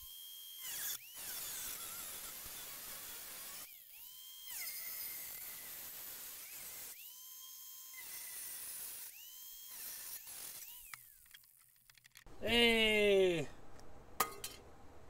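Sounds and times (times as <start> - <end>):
angle grinder cutting sheet metal: 0.0 - 11.6.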